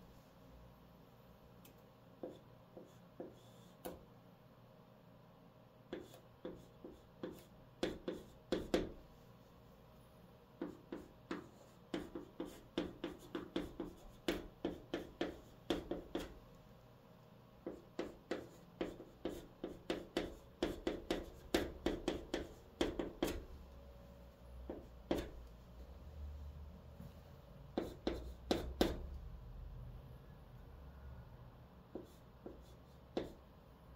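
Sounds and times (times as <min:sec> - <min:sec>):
chalk tapping and scratching: 0:02.2 - 0:04.0, 0:05.9 - 0:09.0, 0:10.6 - 0:16.4, 0:17.6 - 0:23.5, 0:24.6 - 0:25.5, 0:27.8 - 0:29.1, 0:31.9 - 0:33.4.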